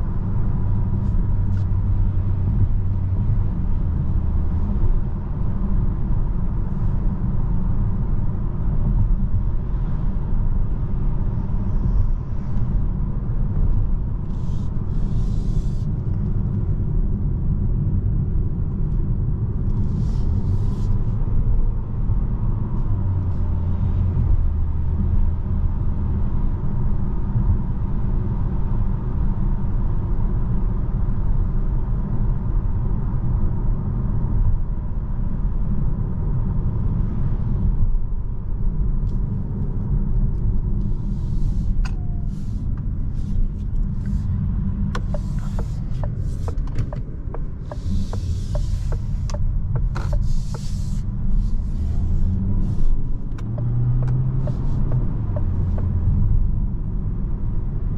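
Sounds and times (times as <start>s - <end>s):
car interior road rumble: 0.0s - 57.9s.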